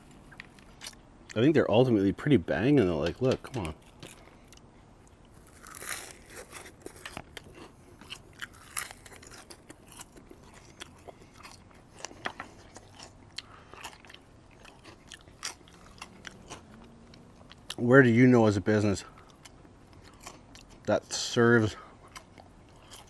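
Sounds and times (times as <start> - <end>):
person crunching crispy fries: 5.3 - 17.9, 18.6 - 23.0.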